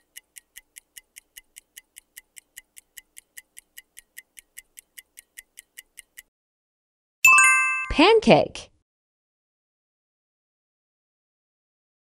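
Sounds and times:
clock-like ticking: 0.0 - 6.3.

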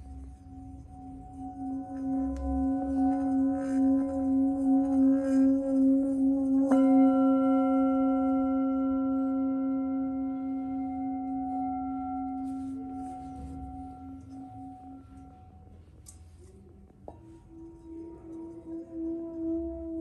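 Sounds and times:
singing bowl humming: 0.0 - 20.0
singing bowl strike ringing: 1.6 - 15.5.

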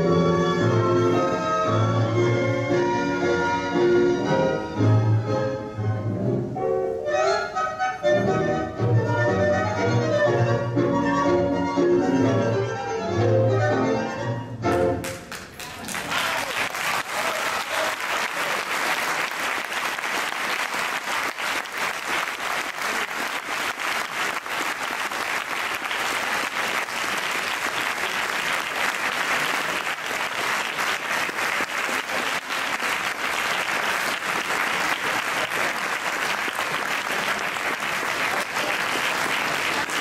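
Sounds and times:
audience applauding: 15.0 - 40.0.

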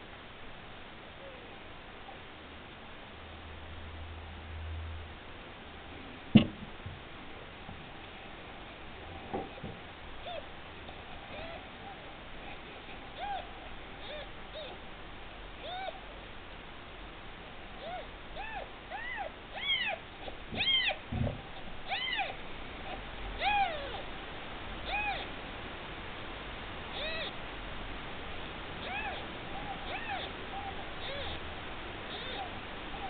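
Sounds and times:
kitten mewing: 11.3 - 14.8, 15.6 - 16.1, 17.8 - 21.0, 21.8 - 24.1, 24.8 - 25.3, 26.9 - 27.4, 28.8 - 31.4, 32.1 - 33.0.

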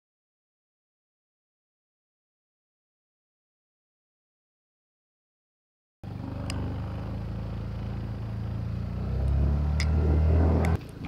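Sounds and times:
motor scooter engine running: 6.0 - 11.0.

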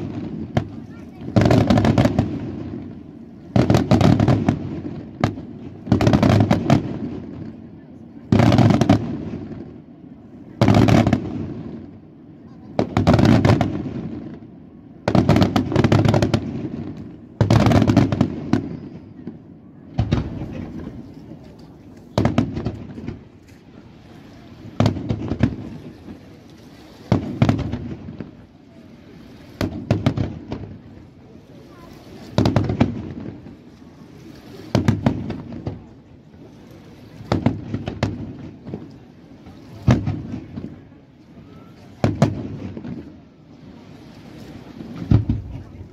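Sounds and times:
firework shells booming: 15.1 - 23.4, 24.6 - 26.1, 27.1 - 28.4, 34.7 - 35.8, 39.8 - 40.8, 42.0 - 43.1, 44.8 - 45.9.

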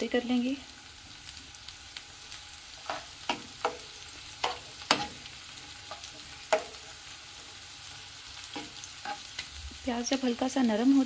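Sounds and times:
onion sizzling in a frying pan: 0.0 - 11.0
metal spoon scraping a pan: 2.7 - 9.5.

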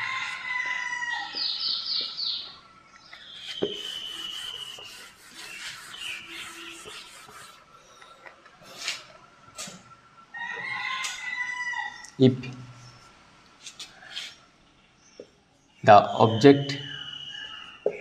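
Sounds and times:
rooster crowing: 0.0 - 1.7, 10.3 - 12.2, 16.7 - 18.0
birds chirping: 0.0 - 18.0
whiteboard rubbing: 3.2 - 7.7
long high whistle: 3.4 - 6.9, 16.4 - 18.0.

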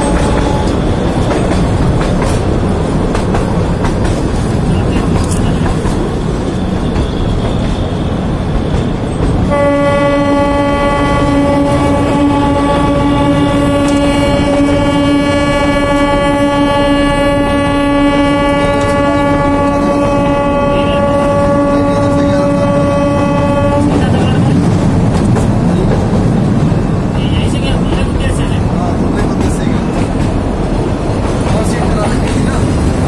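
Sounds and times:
locomotive horn: 0.0 - 1.0, 9.5 - 24.3
train running: 0.0 - 33.0.

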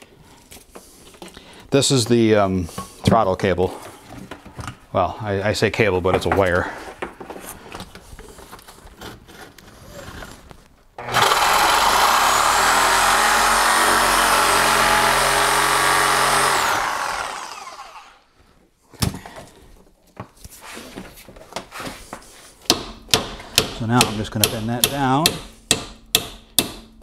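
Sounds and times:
reciprocating saw cutting metal: 11.0 - 18.2.

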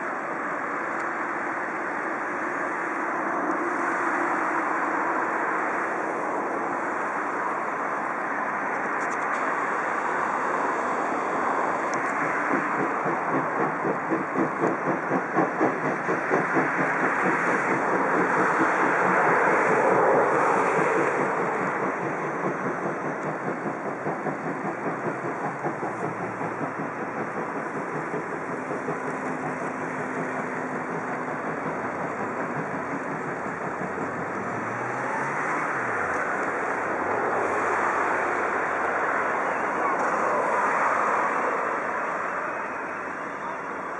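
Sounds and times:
steam locomotive exhaust chuffs: 11.8 - 43.8.

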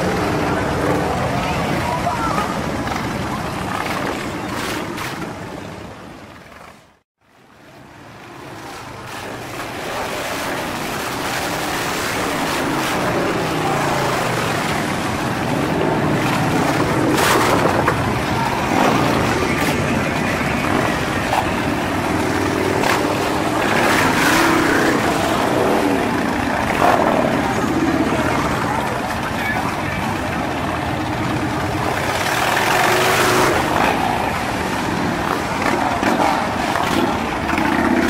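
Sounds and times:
motorcycles revving past: 9.1 - 29.0, 31.1 - 38.0.

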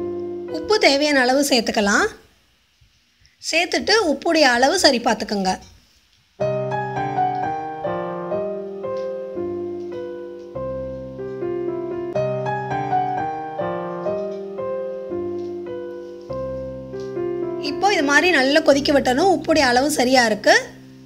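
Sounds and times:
gentle piano music: 0.0 - 1.7, 6.4 - 21.0.

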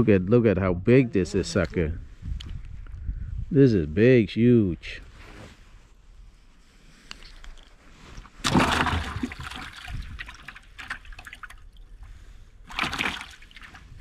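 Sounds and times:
water splashing in bucket: 8.4 - 11.8, 12.6 - 14.0.

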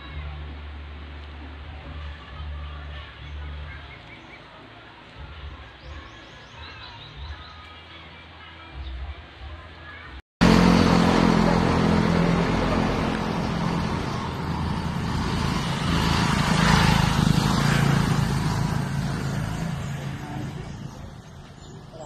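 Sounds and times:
vehicle engine passing by: 10.4 - 22.0.

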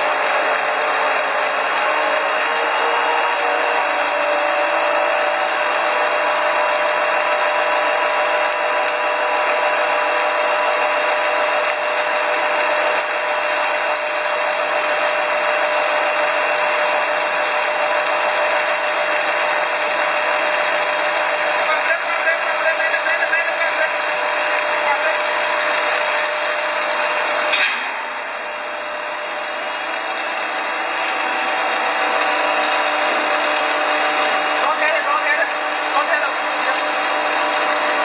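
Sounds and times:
extruder machine mechanical din: 0.0 - 38.0.

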